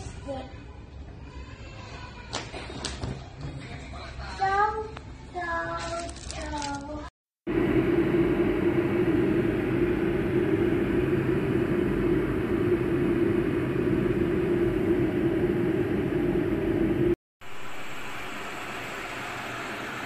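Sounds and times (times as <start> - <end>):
electric kettle heating water: 7.5 - 20.0.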